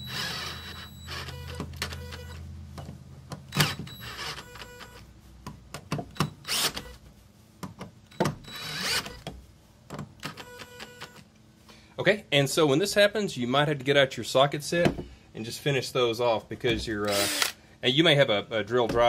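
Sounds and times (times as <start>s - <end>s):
cordless drill driving screws: 0.0s - 2.4s, 6.4s - 7.0s, 8.5s - 9.2s, 17.0s - 17.6s
drill clutch rapid clicking: 17.1s - 17.6s.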